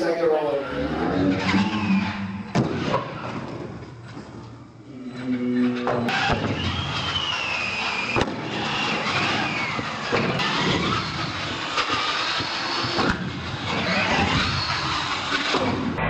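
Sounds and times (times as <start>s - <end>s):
toy truck motor whining: 6.1s - 15.6s.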